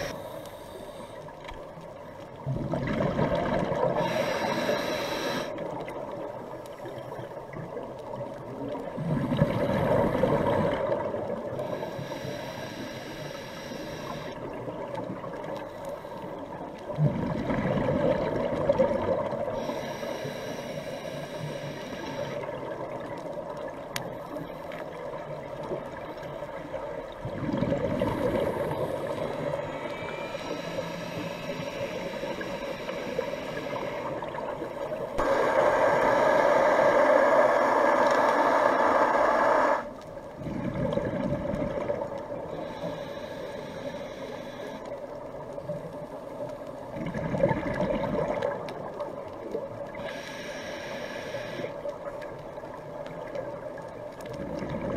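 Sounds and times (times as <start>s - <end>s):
regulator breathing bubbles underwater: 0.0s - 1.2s, 2.9s - 5.7s, 11.6s - 14.5s, 35.2s - 41.3s, 50.0s - 51.8s.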